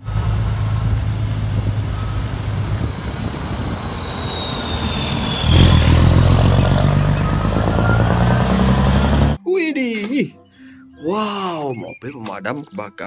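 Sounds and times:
faint high whine: 0.0s - 9.0s
truck diesel engine running: 0.0s - 9.4s.

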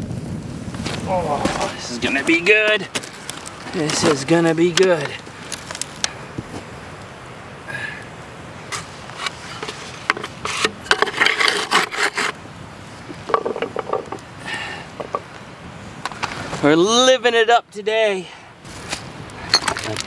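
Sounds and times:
wood scraping and knocking: 0.8s - 6.7s, 8.7s - 12.4s, 13.1s - 14.3s, 14.9s - 15.3s.

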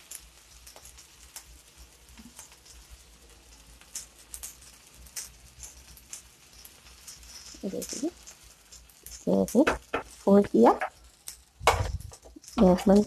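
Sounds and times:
dosa crackling on hot griddle: 0.0s - 13.0s
spatula tapping griddle: 5.2s - 11.0s.

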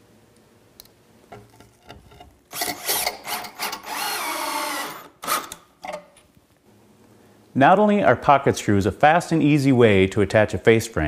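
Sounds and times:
cordless drill driving a screw: 2.5s - 5.6s.

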